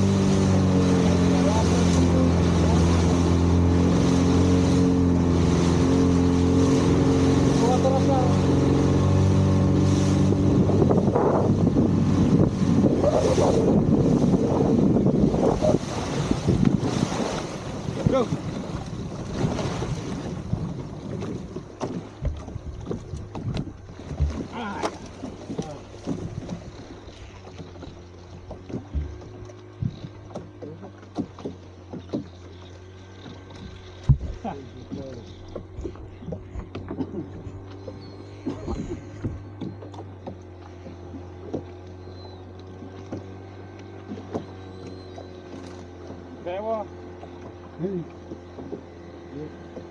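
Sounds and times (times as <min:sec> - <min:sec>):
wind buffeting microphone: 0:00.0 - 0:30.2
boat engine humming: 0:00.0 - 0:49.9
outboard motor running: 0:00.0 - 0:49.9
water rushing past hull: 0:00.0 - 0:49.9
short knocks: 0:21.2 - 0:26.7, 0:27.5 - 0:32.5, 0:33.2 - 0:41.8.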